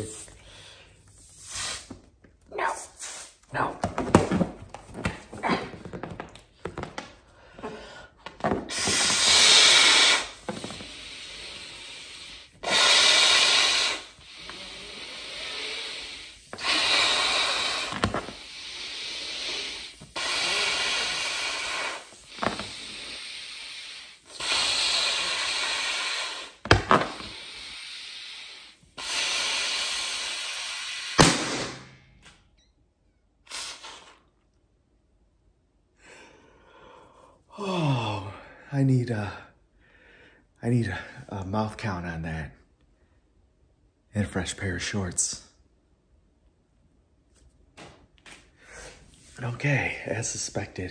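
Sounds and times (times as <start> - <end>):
man blowing into rubber glove: 1.0 - 2.1, 8.6 - 31.6, 33.4 - 34.4
inhales: 36.0 - 41.2.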